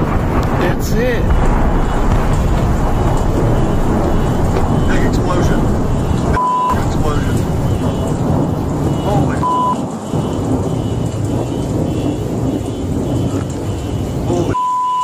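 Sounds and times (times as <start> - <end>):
loud rumbling with hiss: 0.0 - 9.5
short steady beep: 6.3 - 6.8, 8.9 - 10.4, 14.5 - 15.0.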